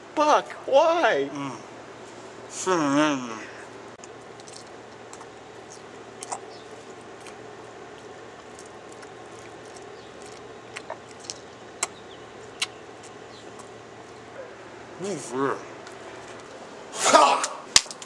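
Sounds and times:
low background hum: 0.0s - 18.0s
gum chewing mouth clicks: 4.0s - 14.2s.

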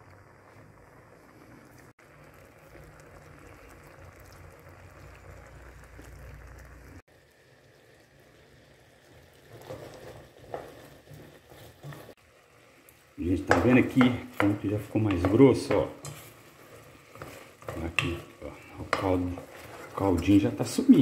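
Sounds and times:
syrup bubbling in a pot: 0.0s - 21.0s
spoon scraping and knocking a pot: 13.5s - 20.2s.

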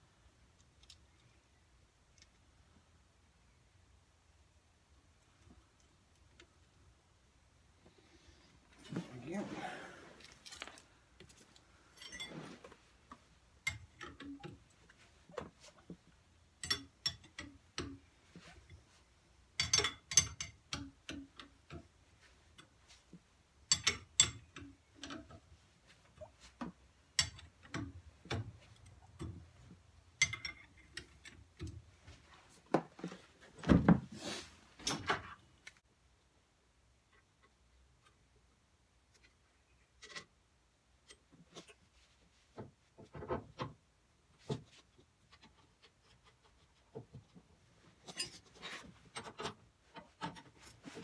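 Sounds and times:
metal tools clicking on metal: 23.7s - 25.2s.

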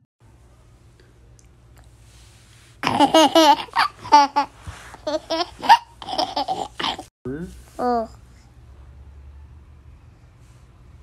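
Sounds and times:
toddler laughing: 2.8s - 7.1s.

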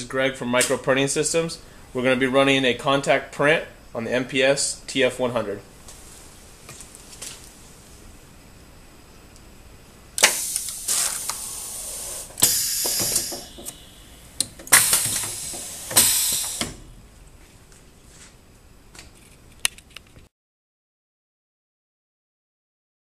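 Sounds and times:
hissing air bursts: 10.2s - 17.0s.

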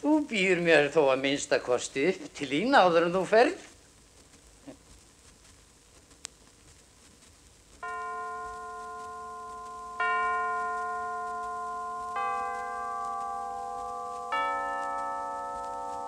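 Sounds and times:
record hiss: 0.0s - 16.0s
bell-like chimes: 7.8s - 16.0s.

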